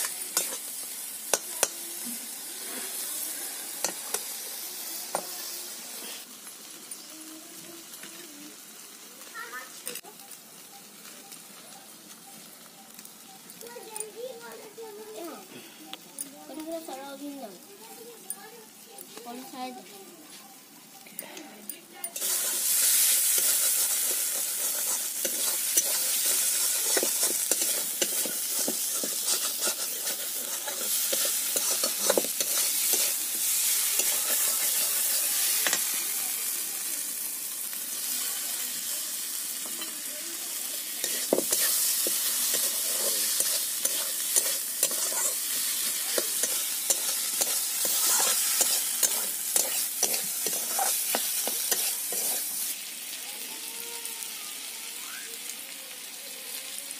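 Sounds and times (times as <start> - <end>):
spatula scraping pan: 0.0 - 0.7, 22.2 - 36.0, 41.0 - 52.7
fish sizzling in hot oil: 0.0 - 19.9, 20.6 - 56.9.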